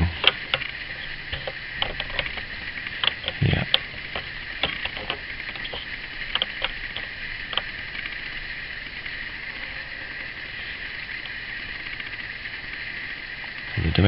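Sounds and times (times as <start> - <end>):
steady hiss: 0.0 - 14.0
light clicks and taps: 1.3 - 7.7.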